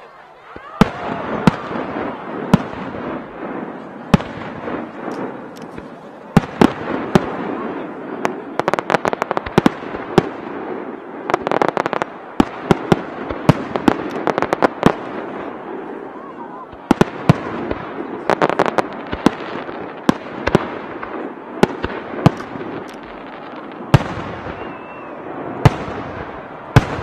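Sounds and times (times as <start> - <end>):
firework bangs: 0.0 - 27.0
firework crackle: 0.0 - 27.0.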